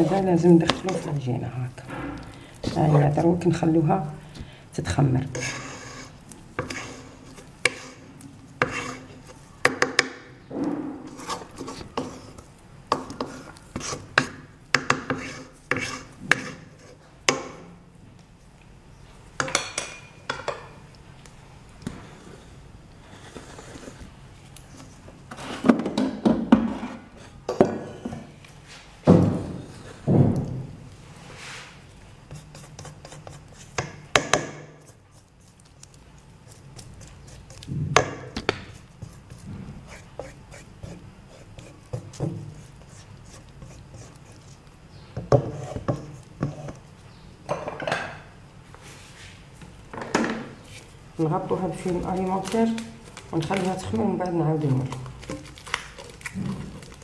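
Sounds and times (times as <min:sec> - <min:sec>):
spoon scraping metal bowl: 0:05.2 - 0:09.4, 0:10.9 - 0:17.0, 0:32.3 - 0:33.8, 0:38.7 - 0:44.6, 0:45.3 - 0:46.8.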